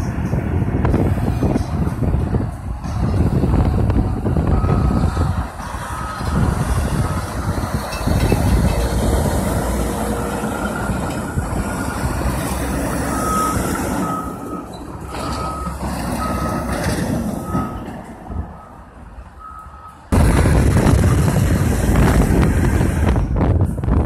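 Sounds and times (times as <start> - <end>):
diesel truck engine running: 0.0 - 24.0
backup alarm beeping: 4.5 - 7.7, 12.9 - 16.8, 17.4 - 17.8, 18.6 - 20.1.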